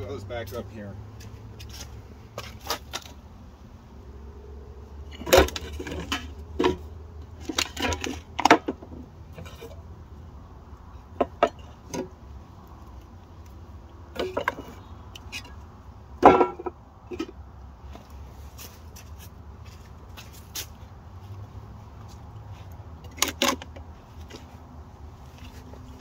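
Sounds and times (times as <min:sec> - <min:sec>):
tin cans clanking on wood: 0:05.1 - 0:09.8, 0:14.1 - 0:14.8, 0:16.2 - 0:17.4, 0:23.0 - 0:23.8.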